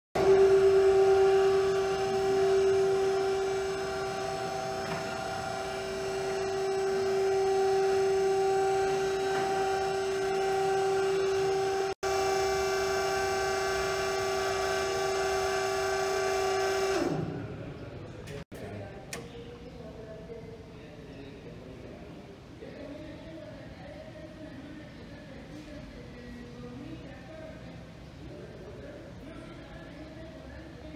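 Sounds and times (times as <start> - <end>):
hydraulic power unit humming: 0.2 - 20.1.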